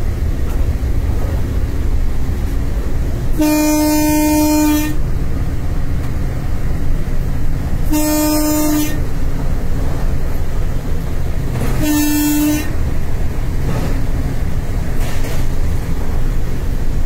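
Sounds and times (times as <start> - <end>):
locomotive cab rumble: 0.0 - 17.0
locomotive horn blast: 3.2 - 5.1, 7.8 - 9.2, 11.6 - 12.8.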